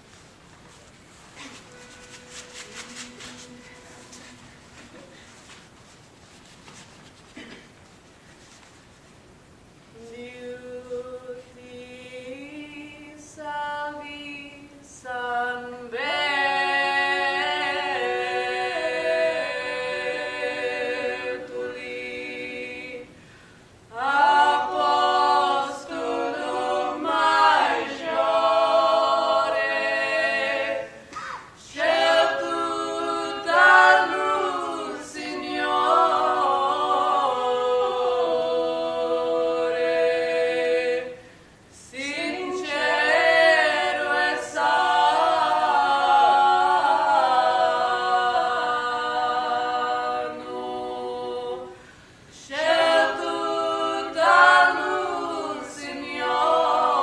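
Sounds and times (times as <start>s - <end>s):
a cappella group singing: 1.4s - 5.3s, 9.9s - 57.0s.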